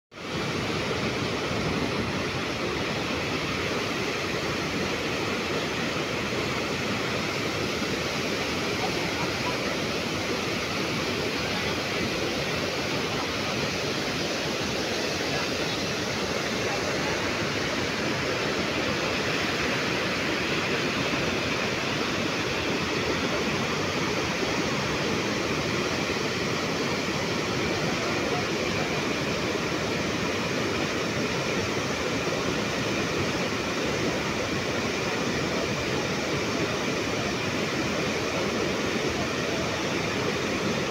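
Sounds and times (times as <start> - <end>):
water pouring over dam spillway: 0.2 - 40.9.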